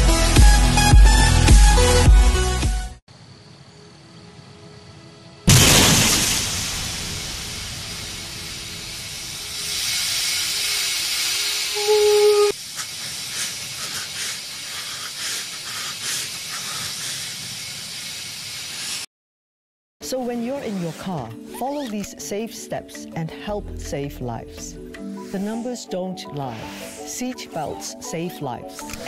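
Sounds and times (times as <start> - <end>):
hiss with crackles: 5.5 - 19.1, 25.1 - 28.0
loud rushing hiss: 5.5 - 19.1.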